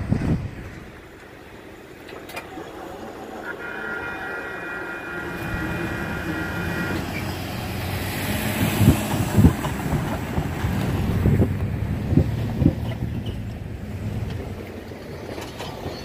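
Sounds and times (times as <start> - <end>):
cars rumbling over rails: 0.0 - 16.0
horn chord: 3.4 - 8.7
tyres thumping on rails: 5.2 - 16.0.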